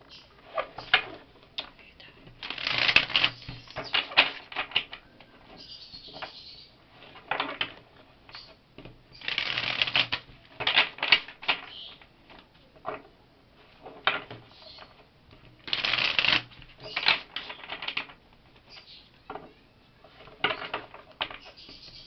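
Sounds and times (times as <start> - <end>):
cards being riffle-shuffled: 2.3 - 6.3, 9.1 - 11.8, 15.6 - 18.2.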